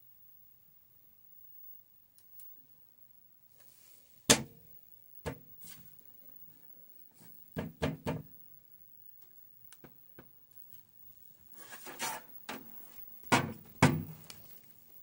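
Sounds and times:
knocks on monitor cabinet: 7.6 - 8.3, 13.3 - 14.2.

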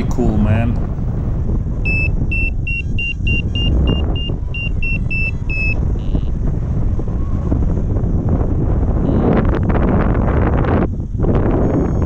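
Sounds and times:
wind rushing over microphone: 0.0 - 12.0
variometer short high beeps: 1.8 - 6.3.

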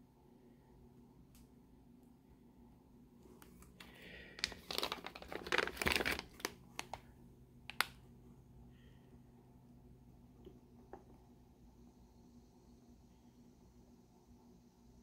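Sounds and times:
plastic bags crinkling: 3.8 - 7.1.

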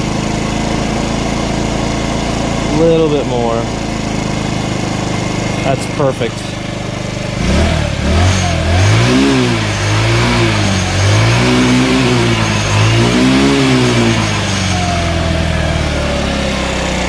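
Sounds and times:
scooter engine revving and idling: 0.0 - 17.0.

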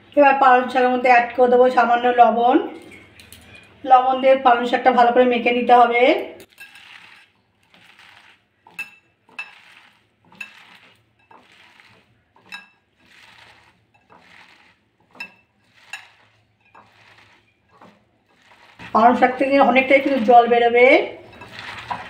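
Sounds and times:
wet leaves squelching: 6.6 - 8.4, 9.4 - 20.4, 21.3 - 22.0.

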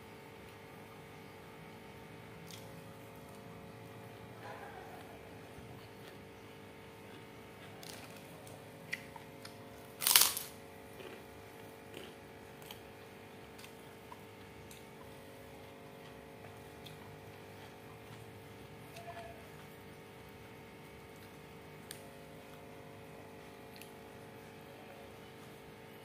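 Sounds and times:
faint steady hum: 0.0 - 26.0
chewing: 4.6 - 6.3, 7.0 - 11.3, 11.9 - 12.9, 15.9 - 19.8
loud crackle: 10.0 - 10.5.

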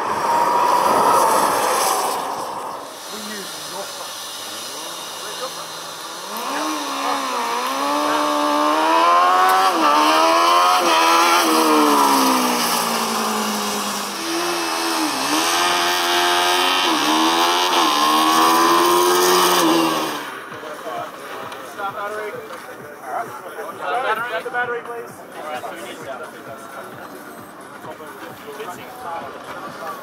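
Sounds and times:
race car engines revving: 0.0 - 22.9.

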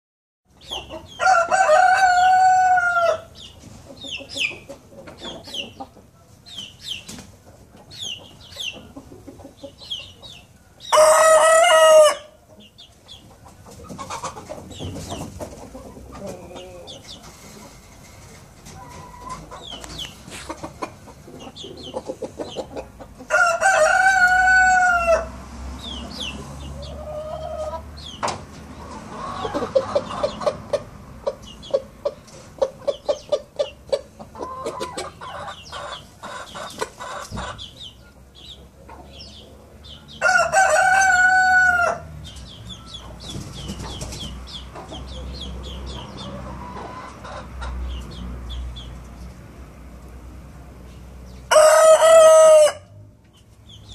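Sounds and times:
young rooster crowing: 1.2 - 3.3, 10.9 - 12.4, 23.3 - 25.4, 40.2 - 42.1, 51.5 - 53.0.

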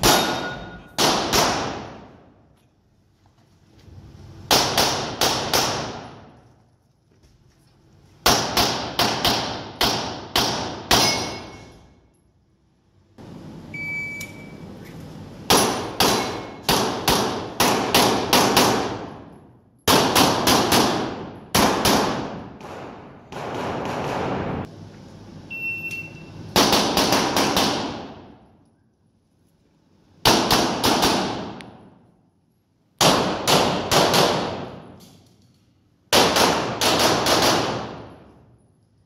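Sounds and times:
pistol shots echoing indoors: 0.0 - 2.5, 4.4 - 6.5, 8.2 - 11.7, 15.5 - 24.7, 26.5 - 28.6, 30.1 - 32.3, 33.0 - 39.0.

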